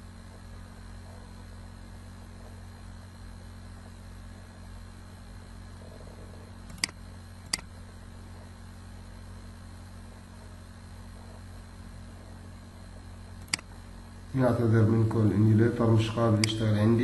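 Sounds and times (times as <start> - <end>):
low electrical hum and hiss: 0.0 - 17.0
computer mouse clicks: 6.6 - 7.7, 13.4 - 13.7.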